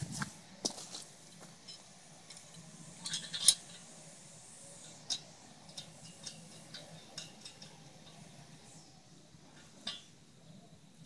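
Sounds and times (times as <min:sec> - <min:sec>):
light metal clicks and clinks: 0:04.8 - 0:08.6.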